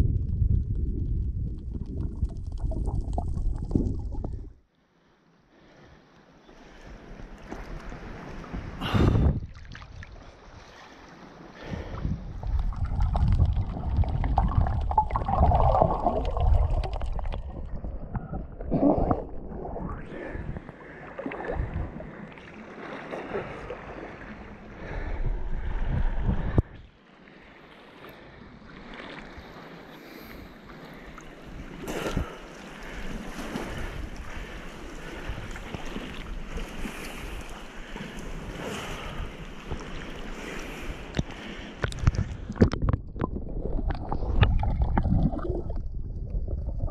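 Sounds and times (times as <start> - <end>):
seawater sloshing and splashing: 6.7 - 25.0, 28.2 - 46.1.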